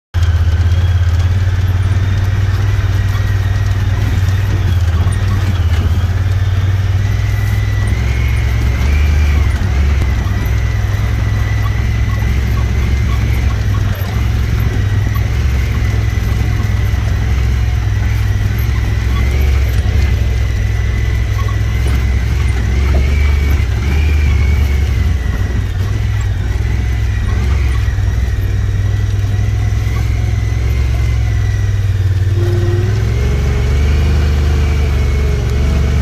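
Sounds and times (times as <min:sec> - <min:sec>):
vehicle engine drone: 0:00.1 - 0:36.0.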